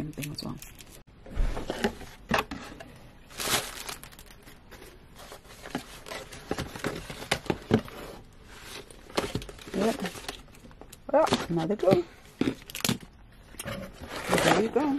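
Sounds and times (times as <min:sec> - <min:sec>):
plastic packaging crinkling: 0:03.2 - 0:07.9, 0:08.5 - 0:13.2.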